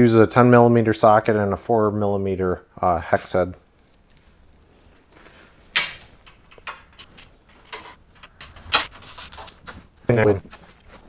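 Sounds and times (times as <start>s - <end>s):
small hardware clicking and knocking: 5.8s - 8.9s.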